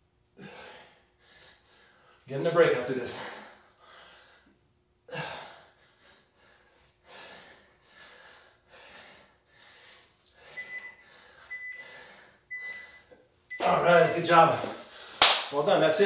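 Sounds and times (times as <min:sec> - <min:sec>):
man breathing hard: 0:00.4 - 0:02.2, 0:03.1 - 0:13.1, 0:14.6 - 0:15.2
interval timer beeps: 0:10.6 - 0:11.8, 0:12.5 - 0:14.3.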